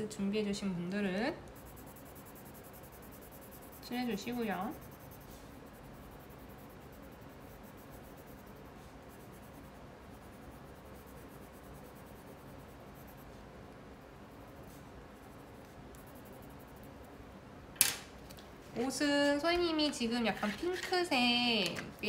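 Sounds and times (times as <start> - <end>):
pencil scratching on paper: 1.5 - 13.5, 14.3 - 17.1.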